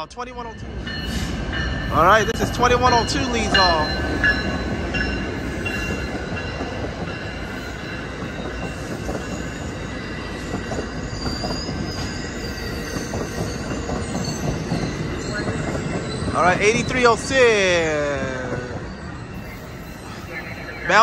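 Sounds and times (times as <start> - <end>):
train wheels rumbling on rails: 0.5 - 21.0
high wheel squeals: 7.3 - 21.0.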